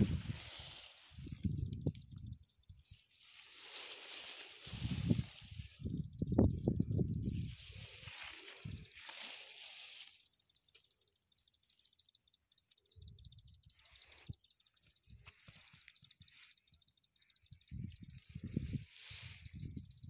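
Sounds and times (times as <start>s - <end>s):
plants rustling: 0.0s - 2.0s, 2.9s - 5.9s, 7.3s - 10.3s.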